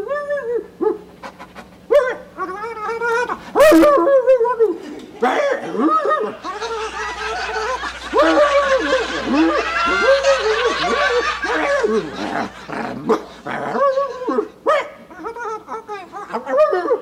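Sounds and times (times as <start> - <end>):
audience laughing: 2.7 - 16.1.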